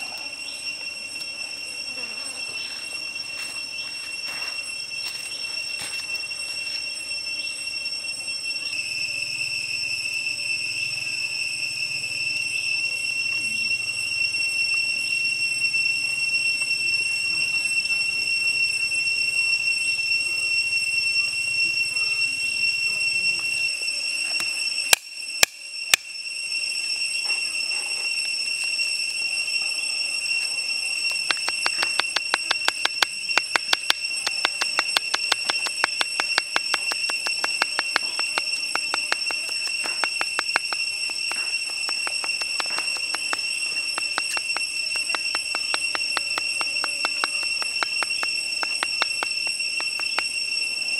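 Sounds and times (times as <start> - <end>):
high-pitched insect drone: 0.0 - 50.9.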